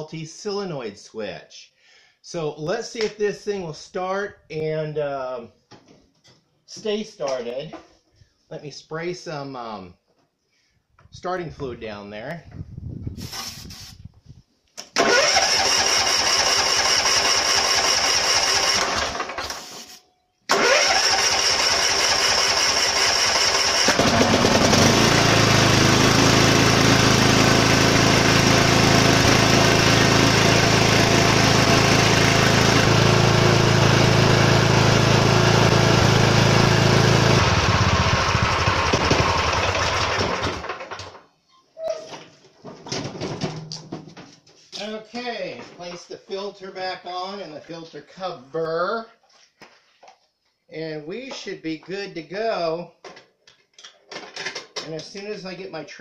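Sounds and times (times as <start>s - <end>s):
electric starter cranking engine: 14.8s - 41.2s
mower engine running: 15.0s - 19.7s, 20.5s - 41.2s.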